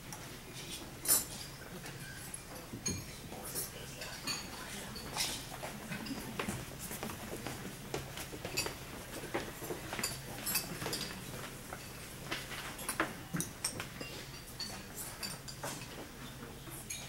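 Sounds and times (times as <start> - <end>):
cutlery and plates clinking: 0.1 - 17.0.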